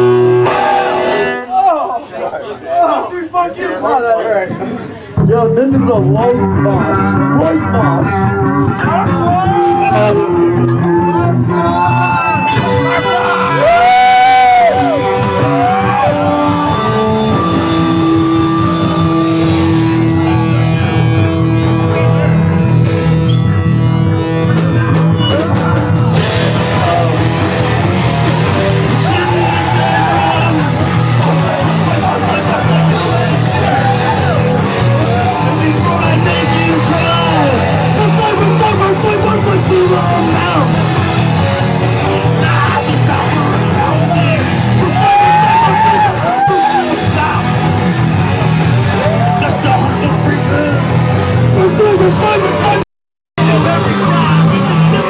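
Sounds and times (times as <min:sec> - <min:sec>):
electric guitar: 0:00.0 - 0:01.6, 0:05.2 - 0:52.8, 0:53.4 - 0:55.0
live rock band playing: 0:00.0 - 0:01.6, 0:05.1 - 0:52.8, 0:53.4 - 0:55.0
person singing: 0:28.4 - 0:40.8, 0:42.0 - 0:47.6.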